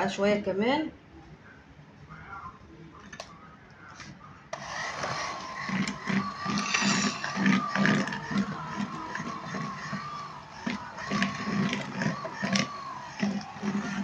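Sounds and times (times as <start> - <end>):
electric mixer motor whining: 4.6 - 14.0.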